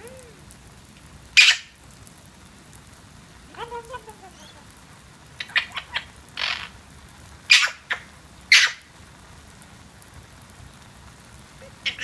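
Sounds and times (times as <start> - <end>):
parrot squawks: 1.4 - 1.7, 5.4 - 6.7, 7.5 - 8.8, 11.7 - 12.0.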